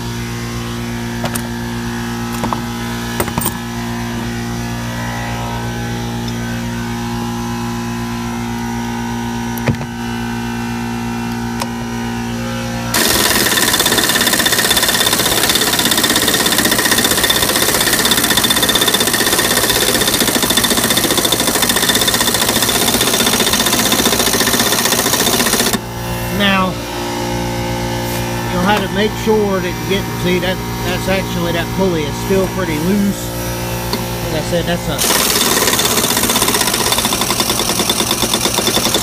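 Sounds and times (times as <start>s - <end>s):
air compressor running: 0.0s - 39.0s
pneumatic impact wrench hammering: 2.3s - 3.7s, 12.9s - 25.8s, 35.0s - 39.0s.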